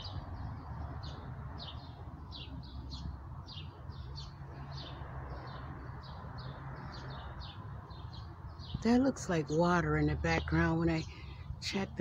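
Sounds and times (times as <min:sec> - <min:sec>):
songbirds chirping: 0:00.0 - 0:12.0.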